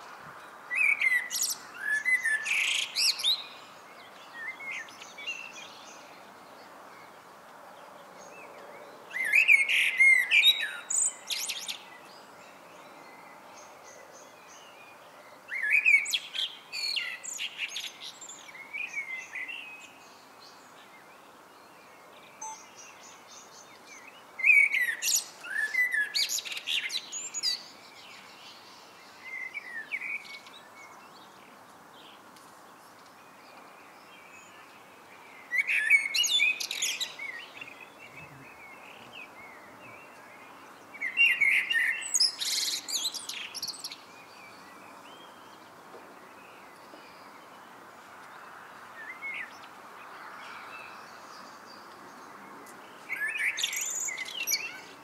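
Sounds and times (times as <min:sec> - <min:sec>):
blackbird singing: 0:00.7 - 0:06.1, 0:09.1 - 0:12.2, 0:22.3 - 0:31.0, 0:35.3 - 0:47.7, 0:52.9 - 0:55.0.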